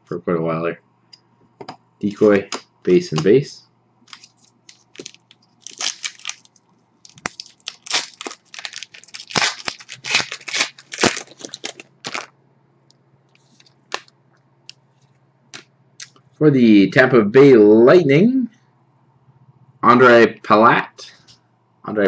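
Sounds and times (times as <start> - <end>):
card pack wrapper crinkling: 4.1 - 12.3, 13.4 - 14.1.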